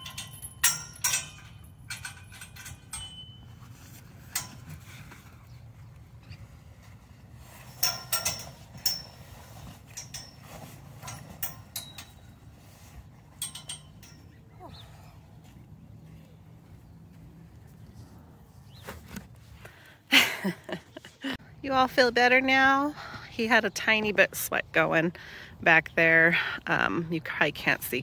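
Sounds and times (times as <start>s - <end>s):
metal buckles clinking: 0.0s - 5.6s, 7.5s - 14.9s.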